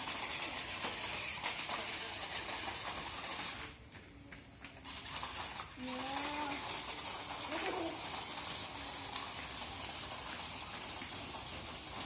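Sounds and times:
small electric motor whirring: 4.8s - 12.0s.

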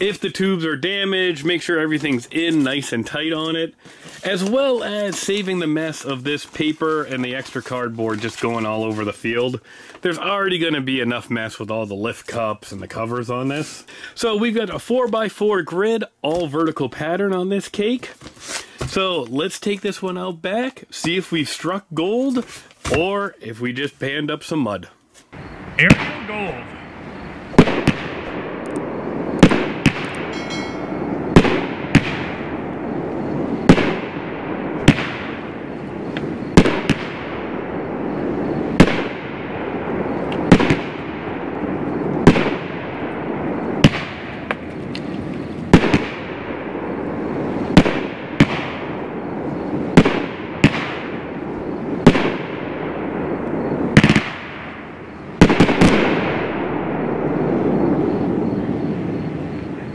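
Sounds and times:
firework bangs: 25.4s - 59.6s.

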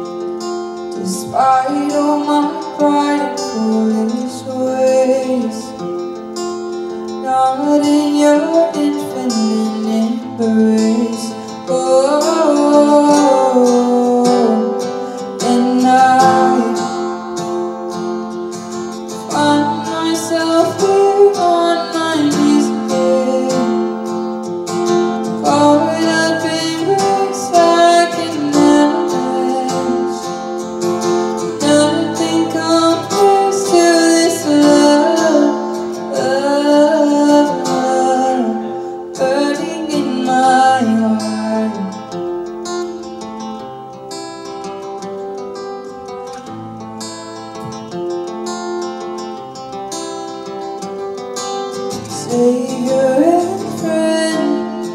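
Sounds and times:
strummed acoustic guitar: 0.0s - 54.9s
woman singing a slow ballad: 0.9s - 5.9s, 7.1s - 17.5s, 19.1s - 24.4s, 25.2s - 42.2s, 51.9s - 54.9s.

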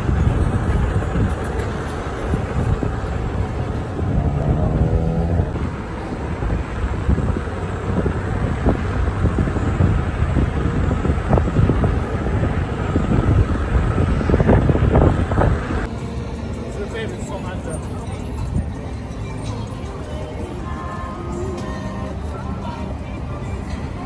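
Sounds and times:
wind rushing over microphone: 0.0s - 16.0s
road and traffic noise: 0.0s - 24.0s.

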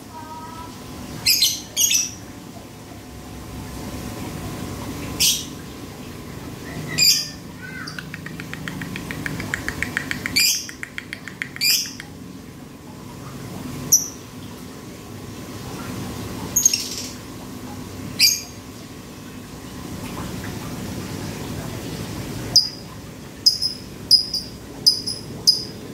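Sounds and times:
bird fast clicking ticks: 7.8s - 12.2s.

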